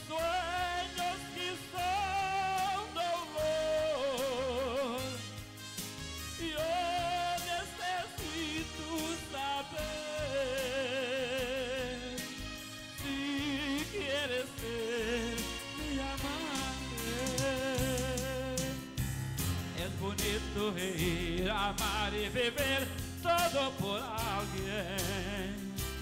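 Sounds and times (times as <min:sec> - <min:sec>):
man singing into a microphone: 0:00.0 - 0:05.4, 0:06.3 - 0:19.0, 0:19.7 - 0:26.0
karaoke backing track: 0:00.0 - 0:26.0
steady bass line: 0:00.0 - 0:26.0.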